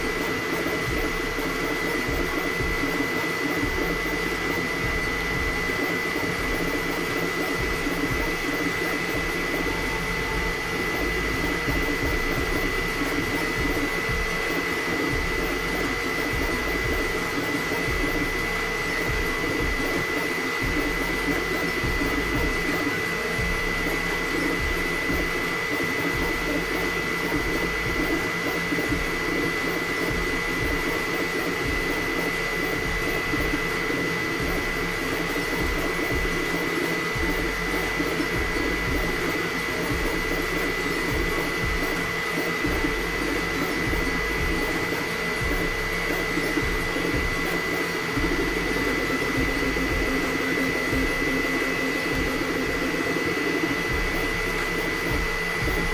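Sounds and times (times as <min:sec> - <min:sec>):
printer motor buzz: 0:00.0 - 0:55.9.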